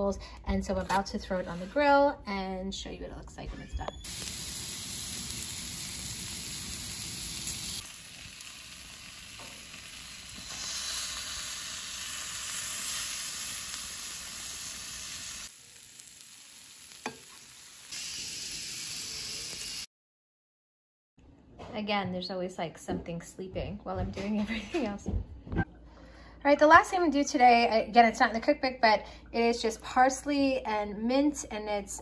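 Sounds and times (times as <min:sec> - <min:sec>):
meat sizzling on a grill: 0:04.1 - 0:19.9
vegetables frying in a pan: 0:04.1 - 0:19.9.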